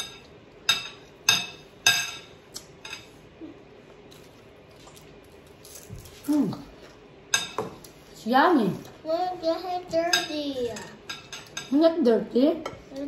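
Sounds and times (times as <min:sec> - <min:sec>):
tableware clinking: 0:00.0 - 0:03.2, 0:07.3 - 0:07.8, 0:10.1 - 0:11.8.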